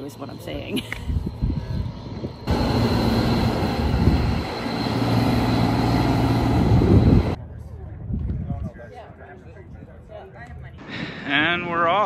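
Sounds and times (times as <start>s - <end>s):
vehicle engine humming: 1.3s - 7.5s.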